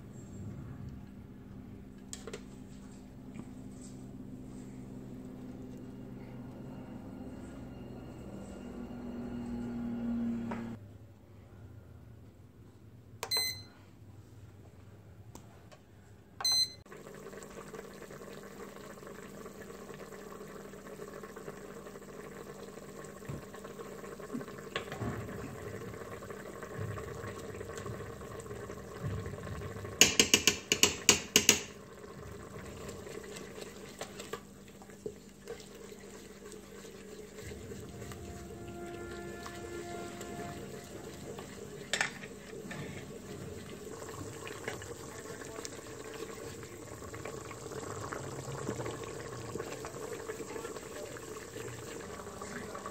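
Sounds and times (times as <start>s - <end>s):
low appliance hum: 0.0s - 52.9s
multicooker beep: 13.2s - 13.7s, 16.4s - 16.8s
liquid simmering: 16.9s - 52.9s
wooden spoon stirring: 30.0s - 47.1s.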